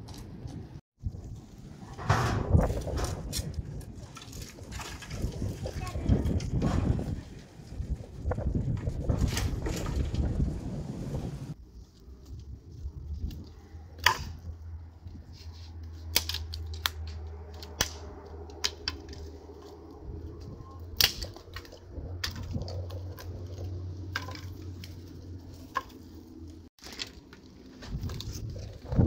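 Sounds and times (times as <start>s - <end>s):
sticks snapping: 15.8s - 19.7s, 20.8s - 23.6s.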